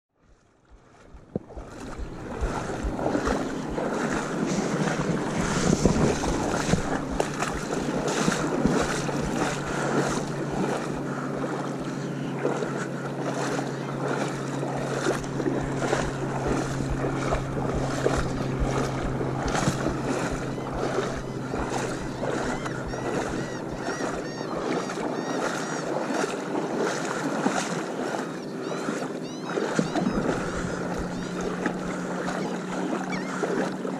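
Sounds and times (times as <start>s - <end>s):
boat motor running: 0.2s - 33.9s
water splashing against hull: 0.2s - 33.9s
wind buffeting microphone: 0.7s - 11.5s, 14.1s - 24.6s, 29.8s - 32.2s.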